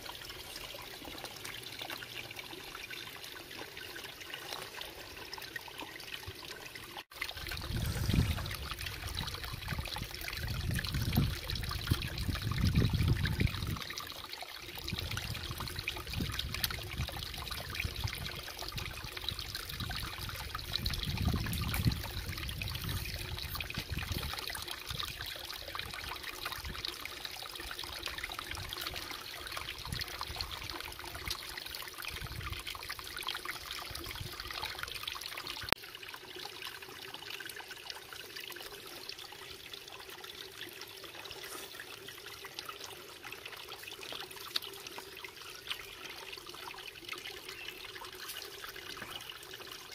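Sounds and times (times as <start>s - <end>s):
water trickling: 0.0s - 49.9s
water rushing: 7.1s - 14.1s.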